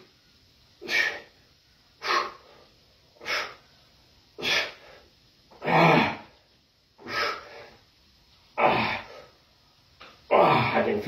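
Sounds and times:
man exhaling hard: 7.0 - 7.8.

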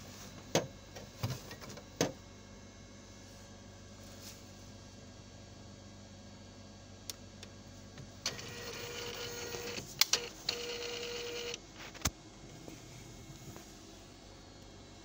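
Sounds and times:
printer carriage motor whine: 8.0 - 12.1.

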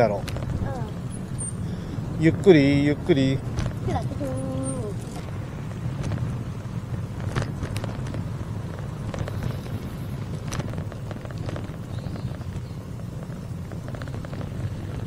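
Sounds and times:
wind rumble on microphone: 0.0 - 15.0
bicycle clicks and rattles: 5.0 - 15.0.

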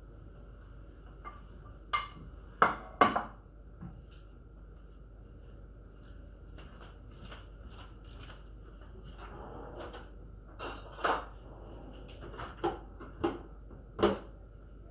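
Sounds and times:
low steady hum: 0.0 - 14.9.

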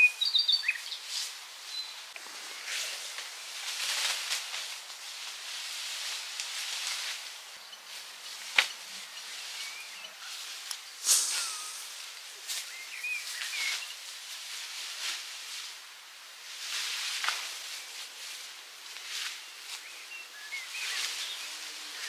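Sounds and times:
rustling and brushing: 0.9 - 22.0
faint short chirps: 11.0 - 12.1.

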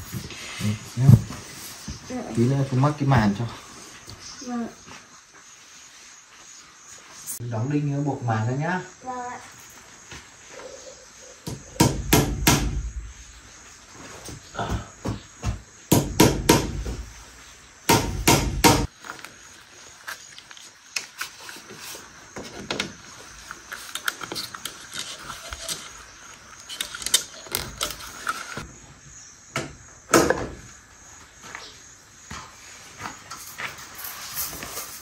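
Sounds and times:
hammer knocking nails into wood: 11.5 - 12.9, 14.7 - 17.0, 17.9 - 18.9
wire clicking and scraping: 23.4 - 28.6.

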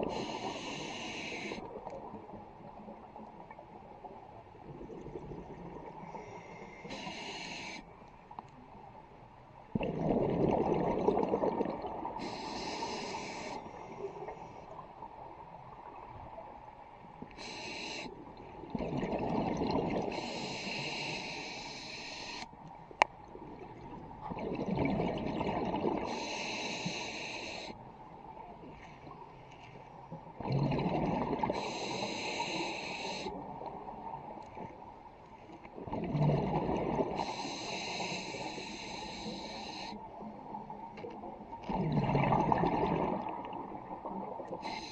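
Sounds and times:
regulator inhale hiss: 0.0 - 1.7, 6.0 - 7.9, 12.2 - 14.6, 17.3 - 18.3, 20.1 - 22.5, 26.1 - 27.8, 31.5 - 33.4, 37.1 - 40.2, 44.5 - 44.9
exhaled bubbles gushing: 4.6 - 6.0, 9.7 - 12.4, 18.6 - 20.2, 23.3 - 26.2, 30.4 - 31.6, 35.8 - 37.3, 41.7 - 44.6.

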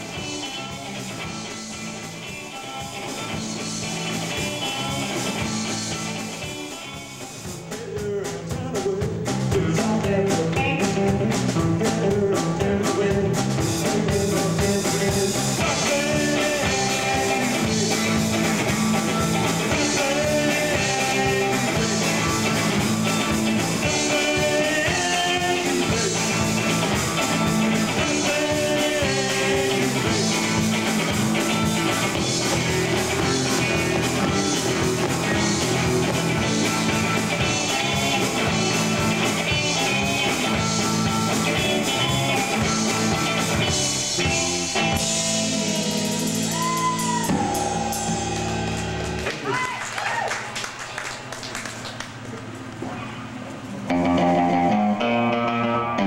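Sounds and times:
rock band playing: 0.0 - 49.8, 53.6 - 56.0
person singing: 7.6 - 18.5, 19.4 - 23.0, 23.6 - 30.7, 44.2 - 49.6.

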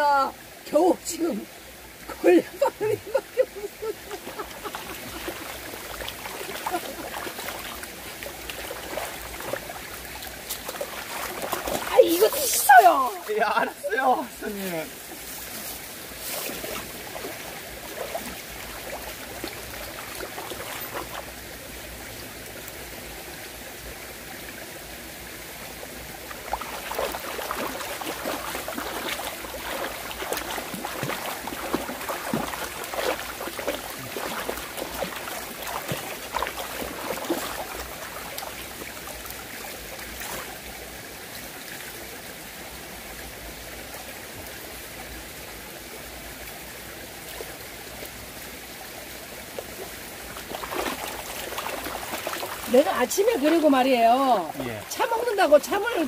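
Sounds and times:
stream running over rocks: 0.0 - 56.0
cloth washed by hand splashing: 2.1 - 21.3, 26.3 - 39.4, 40.0 - 40.6, 50.3 - 56.0.

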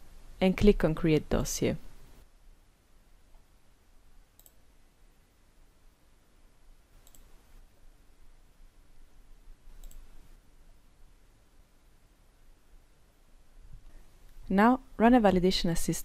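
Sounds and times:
low steady hum: 0.0 - 16.0
computer mouse clicks: 4.4 - 4.6, 7.0 - 7.4, 9.7 - 10.2.

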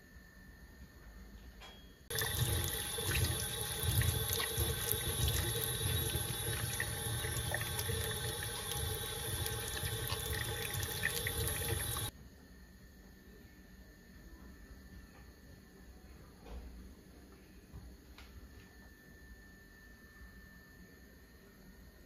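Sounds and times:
tap water splashing in sink: 2.1 - 12.1.

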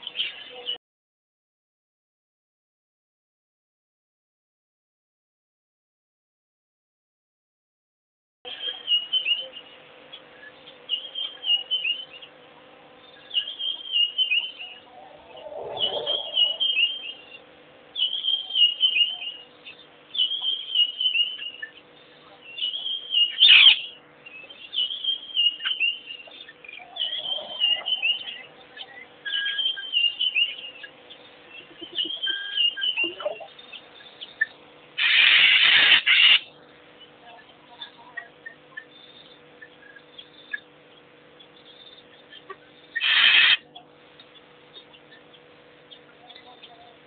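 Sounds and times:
bird singing chirpy phrase: 13.1 - 36.4.

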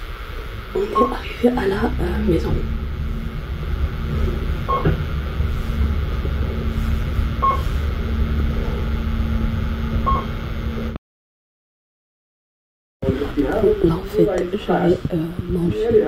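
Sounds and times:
lift car humming: 0.0 - 11.0
short beeps: 0.9 - 1.2, 4.6 - 5.0, 7.4 - 7.7, 10.0 - 10.4.

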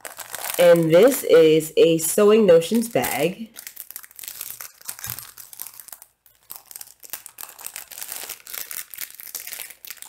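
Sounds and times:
plastic packaging crinkling: 0.0 - 10.0.

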